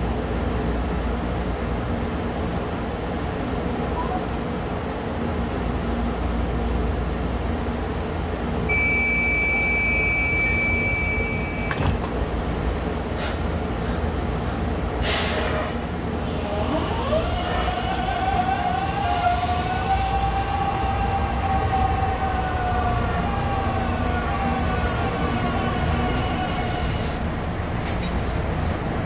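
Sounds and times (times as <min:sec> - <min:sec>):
wheels rumbling on rail: 0:00.0 - 0:08.9, 0:09.6 - 0:29.0
short hiss: 0:15.0 - 0:15.7.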